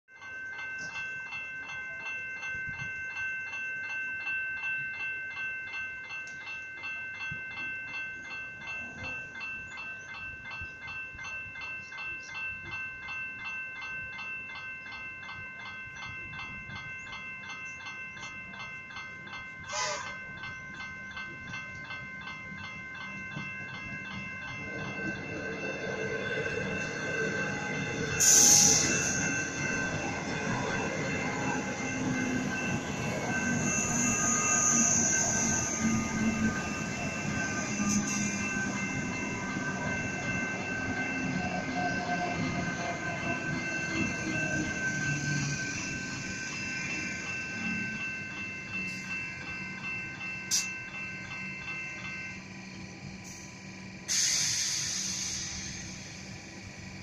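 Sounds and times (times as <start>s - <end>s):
level crossing warning bells: 0.1s - 57.0s
approaching train rumble: 14.3s - 57.0s.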